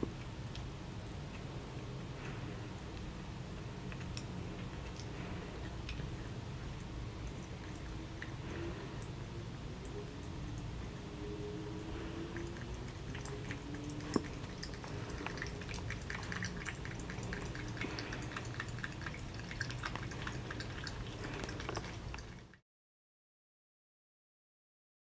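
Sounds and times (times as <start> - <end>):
cat lapping water: 0.0 - 22.6
tap water trickling into sink: 12.6 - 22.4.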